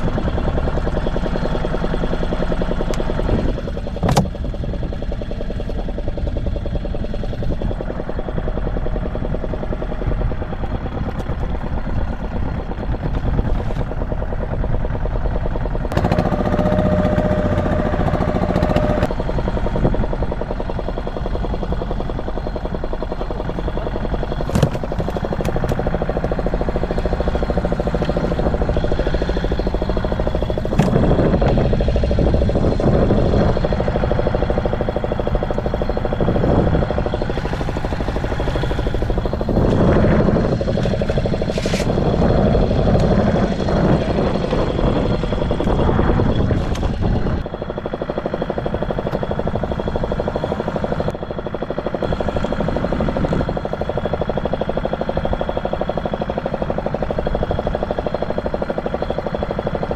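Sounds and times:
boat engine idling: 0:00.0 - 0:59.9
knocks and clatter on board: 0:24.4 - 0:25.8.

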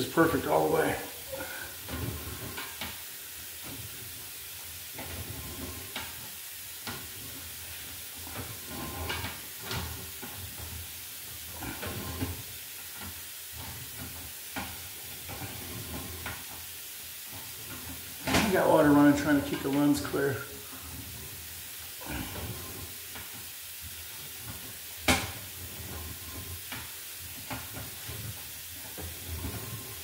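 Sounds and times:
water hissing down a pipe: 0:00.0 - 0:30.0.

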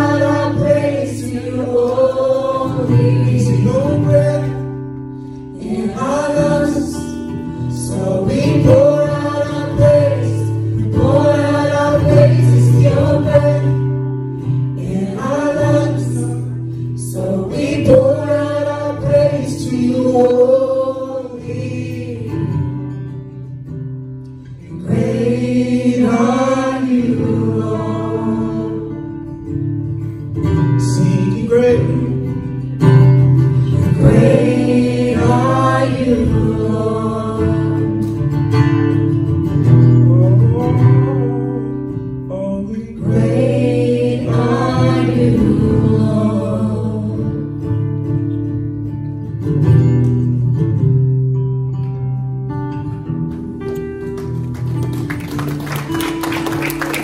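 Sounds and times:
voices singing: 0:00.0 - 0:04.8, 0:05.5 - 0:14.0, 0:14.8 - 0:22.7, 0:24.6 - 0:29.1, 0:33.7 - 0:38.2, 0:42.4 - 0:47.5
acoustic guitar playing: 0:00.0 - 0:57.0.

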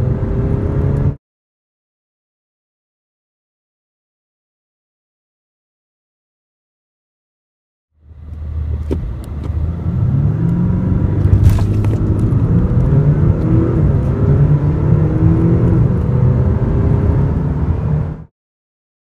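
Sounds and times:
car engine accelerating: 0:00.0 - 0:01.2, 0:08.0 - 0:18.3.

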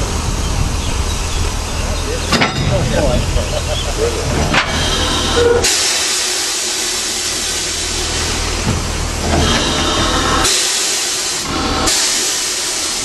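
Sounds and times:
steam locomotive hissing: 0:00.0 - 0:13.0.

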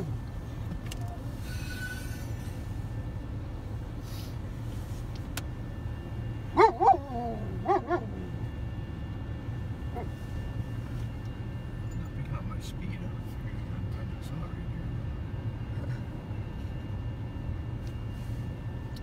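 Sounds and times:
steady low rumble: 0:00.0 - 0:19.0
dog barking: 0:06.6 - 0:08.2.

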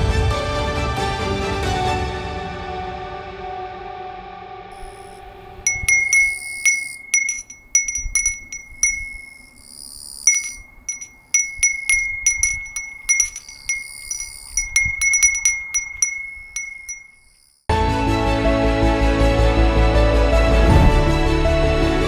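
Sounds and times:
small bell ringing: 0:04.8 - 0:17.7.

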